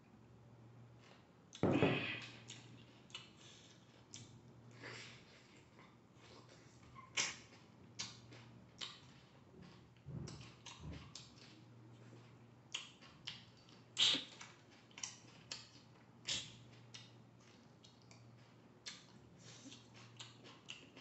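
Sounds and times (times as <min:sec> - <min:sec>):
carrot crunching when chewed: 0:06.3 - 0:21.0.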